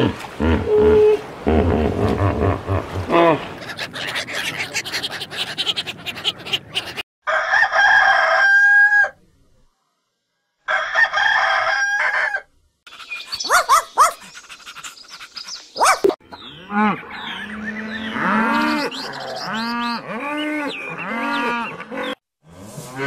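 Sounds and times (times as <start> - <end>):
ducks quacking: 3.5 - 7.0
rooster crowing: 7.2 - 9.2, 10.7 - 12.5.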